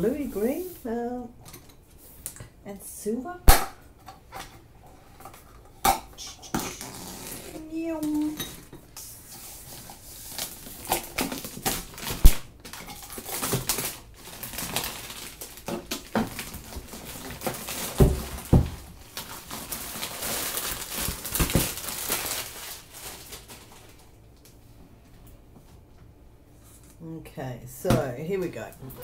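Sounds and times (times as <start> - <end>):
plastic wrapping crinkling: 9.1 - 24.6.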